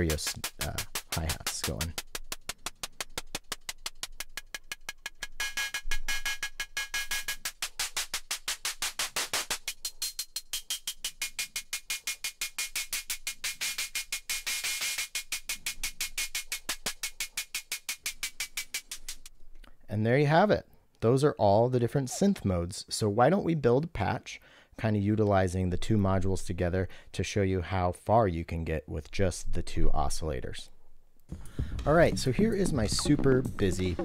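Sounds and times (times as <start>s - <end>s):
synthesized hi-hats: 0.0s - 19.3s, 31.3s - 34.0s.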